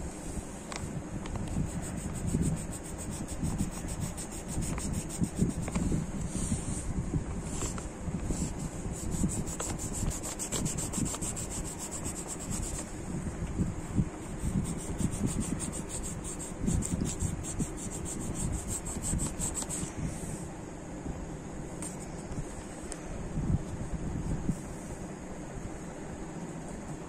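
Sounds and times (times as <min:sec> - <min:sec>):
pencil scratching on paper: 0:01.6 - 0:05.8, 0:08.6 - 0:12.9, 0:14.3 - 0:19.9.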